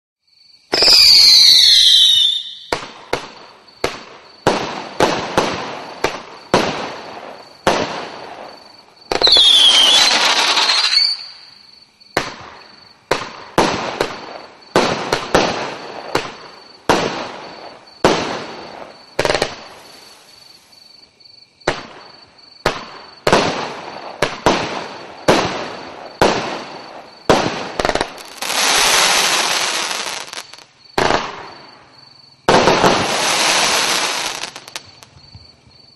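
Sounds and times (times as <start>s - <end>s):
firework sliding whistle: 0.7s - 2.8s, 9.2s - 11.6s, 28.2s - 30.6s, 33.0s - 34.9s
fireworks bangs: 0.7s - 11.5s, 12.1s - 20.3s, 21.6s - 35.5s
fireworks hissing crackle: 0.7s - 11.6s, 12.2s - 20.8s, 21.7s - 31.8s, 32.5s - 35.2s.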